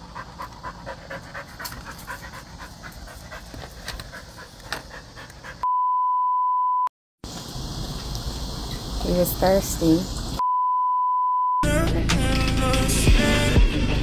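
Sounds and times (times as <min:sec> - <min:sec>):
dog panting: 0:00.0 - 0:05.7.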